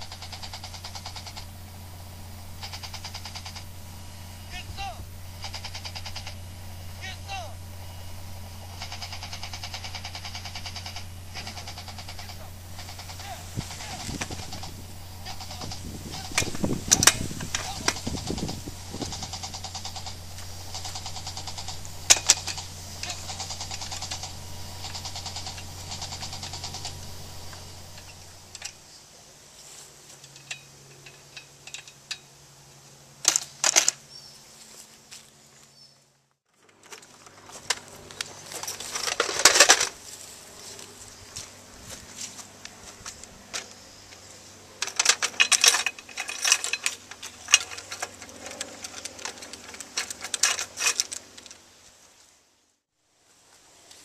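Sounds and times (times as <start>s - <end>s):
machine gun metallic clicks: 15.3s - 20.2s, 20.8s - 28.8s, 30.2s - 32.3s, 33.2s - 34.0s, 36.8s - 40.0s, 44.8s - 51.6s
ammunition belt clicking and rattling: 44.8s - 51.6s.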